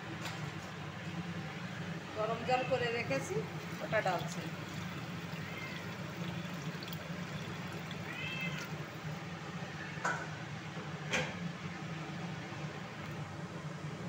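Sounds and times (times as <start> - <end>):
low kitchen hum: 0.0 - 14.0
water pouring from a kettle: 3.4 - 9.2.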